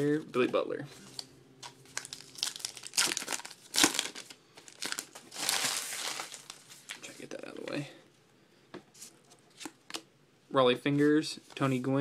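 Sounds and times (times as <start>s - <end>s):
card pack wrapper crinkling and tearing: 1.1s - 7.1s.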